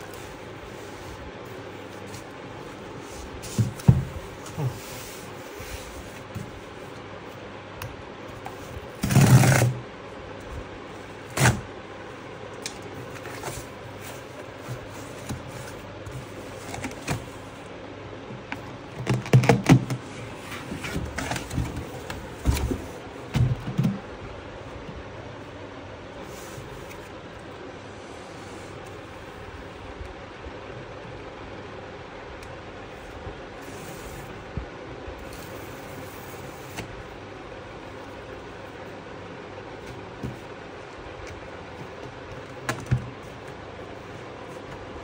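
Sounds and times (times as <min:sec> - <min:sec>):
cardboard box knocking and rubbing: 0:03.4 - 0:04.9
cardboard scraping: 0:08.5 - 0:09.8.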